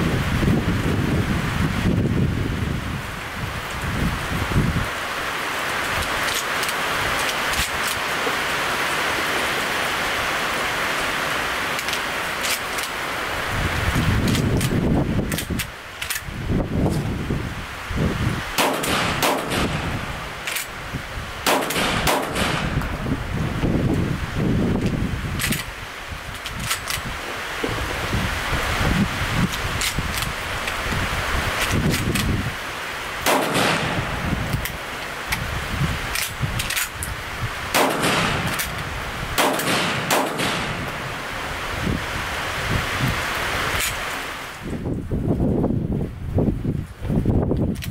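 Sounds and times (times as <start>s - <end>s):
wind noise on microphone: 0.0s - 8.4s, 12.0s - 47.9s
sharp crack: 18.5s - 20.8s, 21.4s - 23.2s, 33.2s - 41.4s
shotgun shots: 18.6s - 20.7s, 21.4s - 23.0s, 33.2s - 34.8s, 37.7s - 38.8s, 39.4s - 41.2s.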